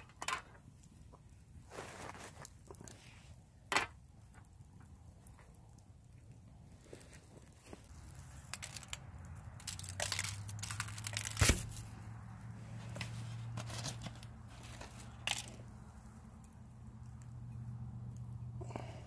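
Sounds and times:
aluminium foil crinkling: 0.0 - 3.3, 6.6 - 12.1, 12.8 - 16.2.

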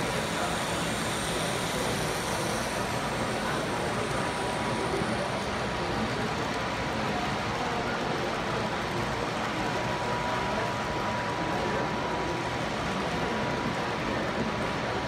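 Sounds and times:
faint steady whine: 0.0 - 6.0
hall background noise: 0.0 - 15.0
model train rolling on track: 0.0 - 15.0.

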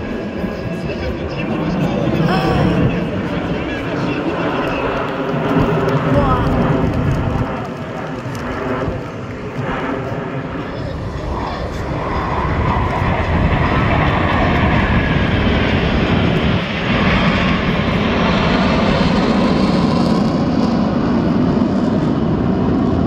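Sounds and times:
jets flying overhead: 0.0 - 23.0.

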